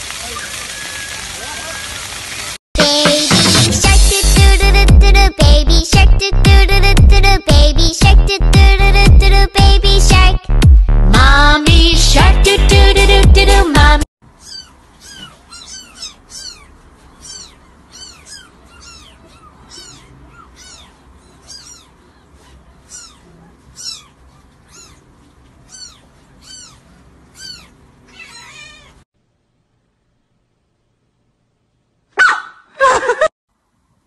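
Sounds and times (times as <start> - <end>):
small animal high-pitched cries: 14.3 - 29.0.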